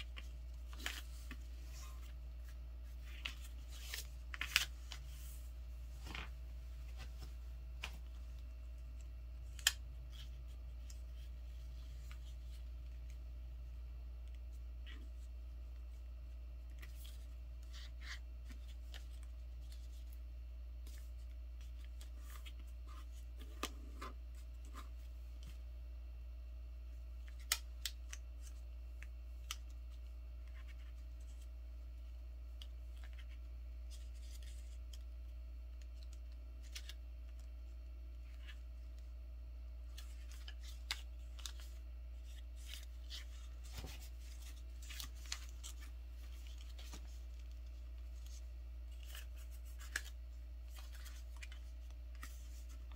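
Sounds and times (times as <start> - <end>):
paper rustling and crinkling: 0.0 - 8.7, 39.8 - 52.9.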